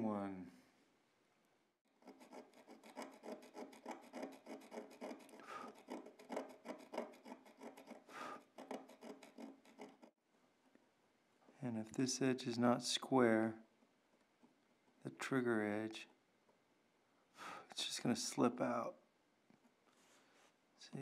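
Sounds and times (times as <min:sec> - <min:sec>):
knife blade scraping carbon brush: 0:02.0 - 0:10.1.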